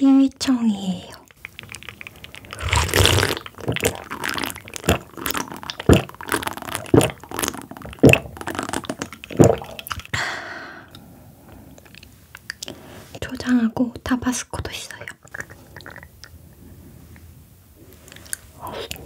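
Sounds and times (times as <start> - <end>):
eating sounds: 1.1 - 10.3, 14.9 - 16.6, 18.0 - 19.0.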